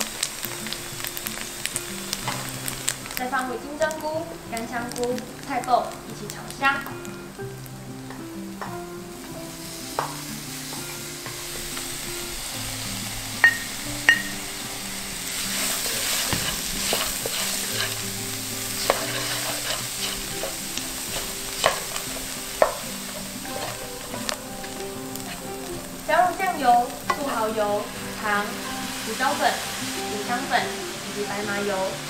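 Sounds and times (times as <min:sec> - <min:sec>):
food sizzling in frying pan: 0:00.0 - 0:32.0
wooden spatula knocking pan: 0:15.8 - 0:18.0, 0:18.8 - 0:25.4.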